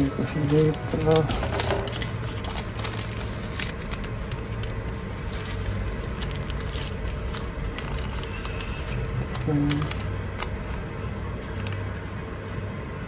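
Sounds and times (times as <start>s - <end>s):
paper and plastic bag rustling: 0.0s - 12.7s.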